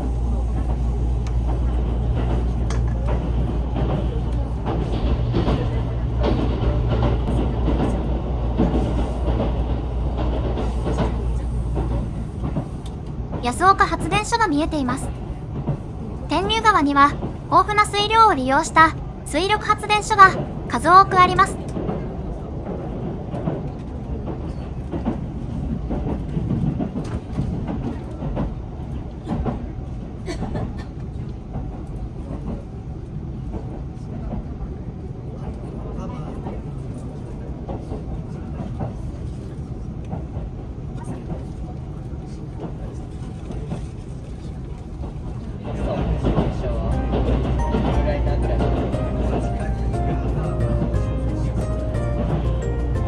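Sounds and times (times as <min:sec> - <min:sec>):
train rumble inside carriage: 0:00.0 - 0:53.0.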